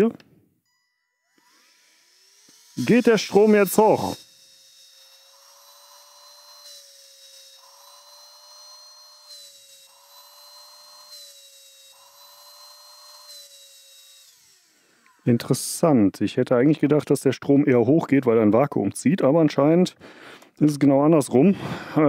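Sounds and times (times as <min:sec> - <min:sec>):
handheld vacuum cleaner motor whine: 0:00.7 - 0:15.8
motor spinning down: 0:01.2 - 0:15.9.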